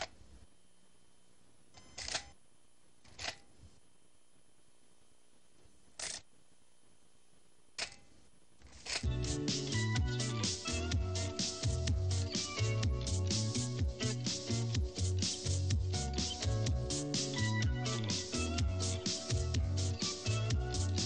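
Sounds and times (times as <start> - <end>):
faint tape hum: 0.0 - 21.0
music: 9.0 - 21.0.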